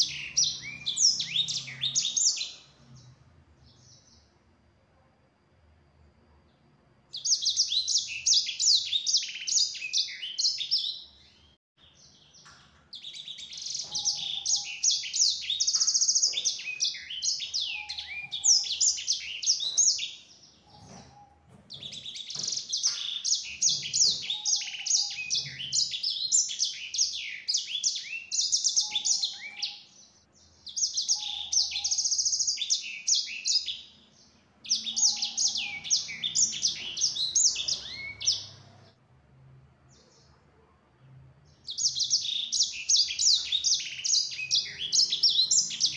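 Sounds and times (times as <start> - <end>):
finch singing warbling trills: 13.0 - 30.0, 30.7 - 33.8, 34.6 - 38.7.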